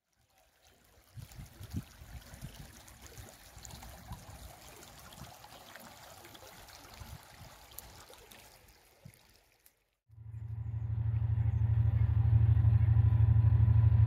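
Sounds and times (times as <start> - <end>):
water flowing in a ditch: 0.0 - 10.1.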